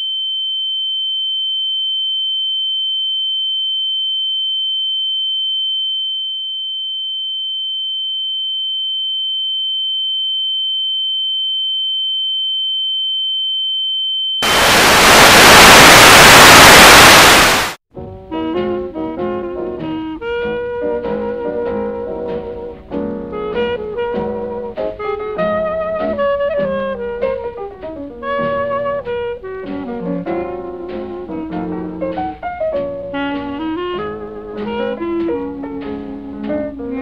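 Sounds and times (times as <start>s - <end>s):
high-pitched electronic sine tone: 0.0s - 17.8s
loud static hiss: 14.4s - 17.8s.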